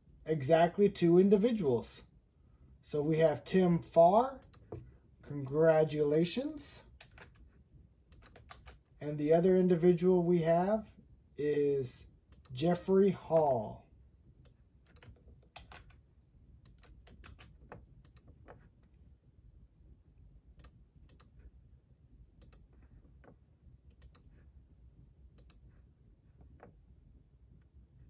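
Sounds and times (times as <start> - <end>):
computer keys clicking: 4.4 - 4.8, 6.9 - 7.5, 8.1 - 8.8, 12.3 - 12.6, 14.4 - 16.0, 16.6 - 18.7, 20.6 - 21.5, 22.4 - 24.3, 25.4 - 25.7.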